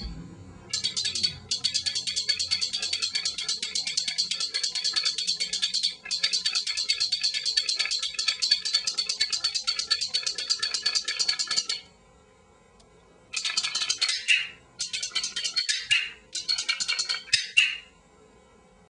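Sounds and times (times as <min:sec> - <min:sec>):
training clickers clicking: 0:00.7 - 0:11.7.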